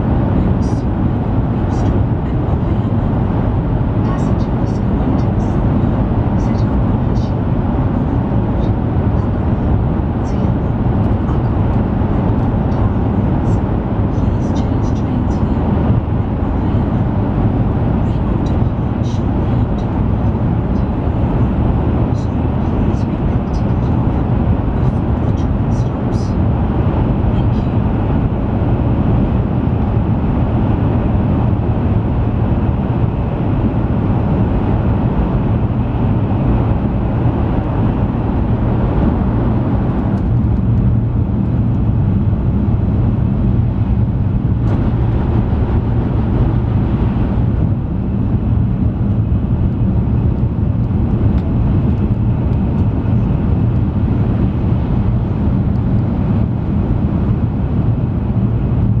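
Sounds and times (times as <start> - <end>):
train cabin rumble: 0.0 - 57.2.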